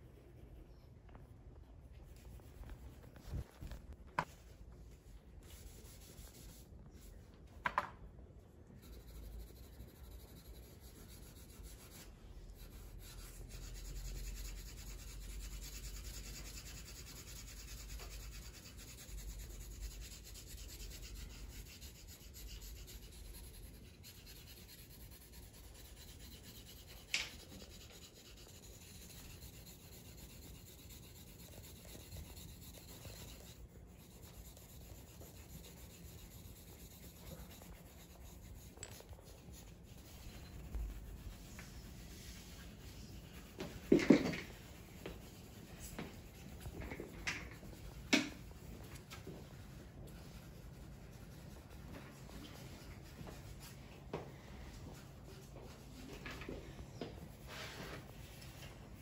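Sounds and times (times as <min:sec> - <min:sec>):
pencil scratching on paper: 0:05.4 - 0:07.1, 0:08.7 - 0:53.8.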